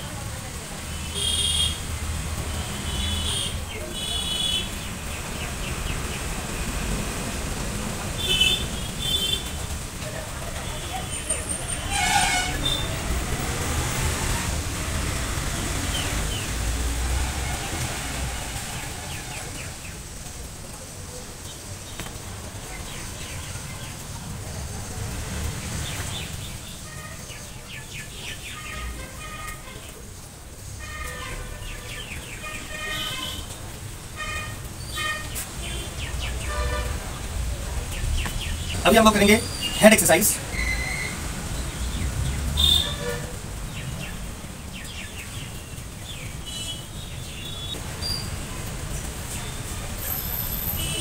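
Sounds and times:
small birds chirping: 25.5s - 30.0s, 34.3s - 43.0s, 43.6s - 51.0s.

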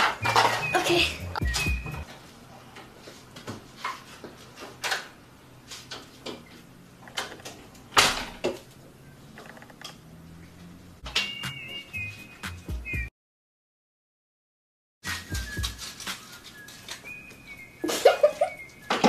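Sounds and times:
kitchen knocks and clunks: 0.0s - 0.8s.

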